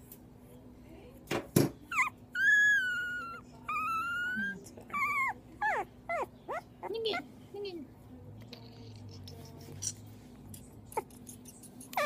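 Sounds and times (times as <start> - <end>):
puppy whining and crying: 1.9 - 7.2.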